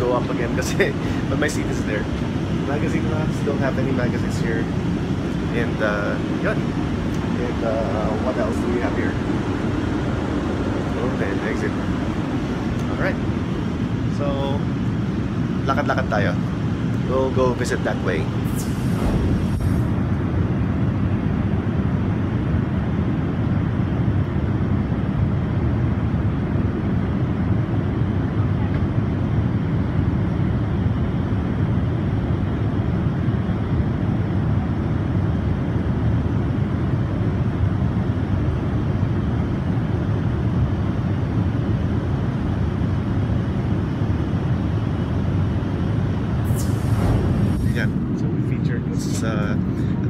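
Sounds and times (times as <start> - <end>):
airplane cabin noise: 0.0 - 50.0.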